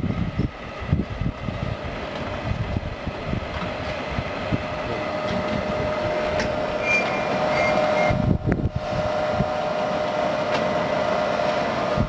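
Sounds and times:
gear motor humming with whine: 0.0s - 12.0s.

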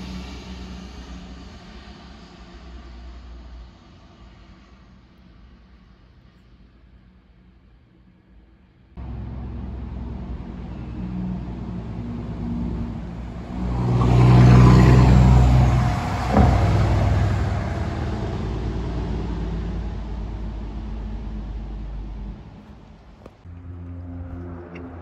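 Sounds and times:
truck diesel engine passing: 9.0s - 25.0s
sharp knock: 15.7s - 20.4s.

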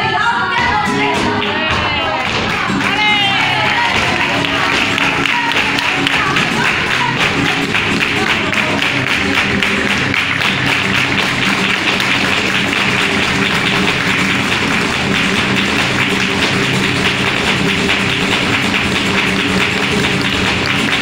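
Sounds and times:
dance footwork tapping on stage: 0.0s - 21.0s
flamenco guitar playing: 0.0s - 21.0s
rhythmic handclaps: 0.4s - 21.0s.

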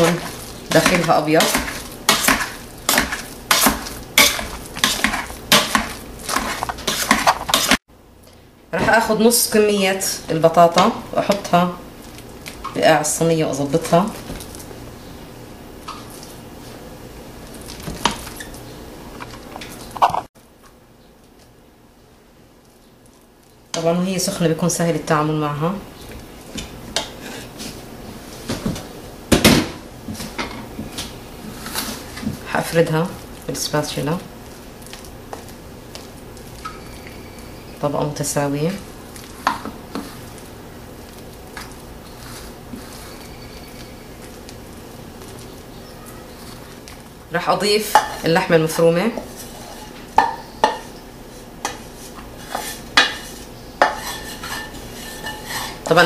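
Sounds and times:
potato masher mashing potatoes: 0.0s - 7.8s
spatula scraping a metal pot: 0.0s - 7.8s, 42.0s - 44.0s, 49.2s - 50.0s, 51.6s - 56.0s.

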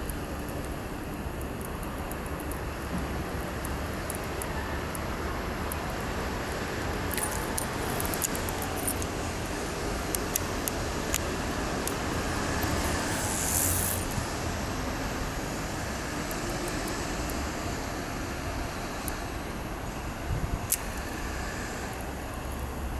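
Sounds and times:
city traffic noise: 0.0s - 22.9s
short hiss: 12.9s - 14.0s.

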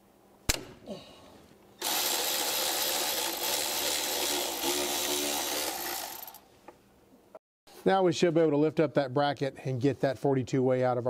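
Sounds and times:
cordless ratchet spinning bolt: 1.8s - 6.4s.

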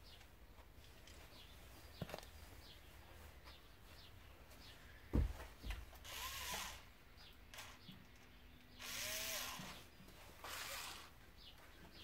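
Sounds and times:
small electric motor whining: 6.0s - 6.9s, 8.8s - 9.8s, 10.4s - 11.2s.

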